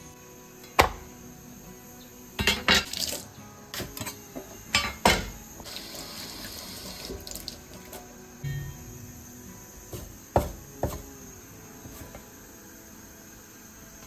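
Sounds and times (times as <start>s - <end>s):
quiet hiss: 0.0s - 14.0s
dishes and utensils clattering: 2.4s - 3.2s, 3.8s - 5.7s.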